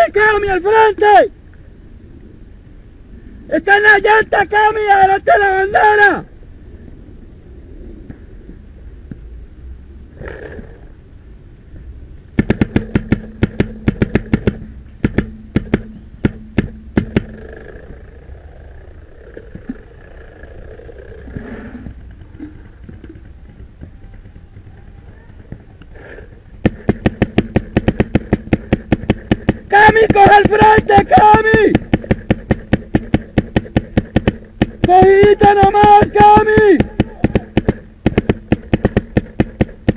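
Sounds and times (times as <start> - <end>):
steady hum: 0.0 - 39.9
paintball marker rapid shots: 12.4 - 17.6, 26.6 - 39.9.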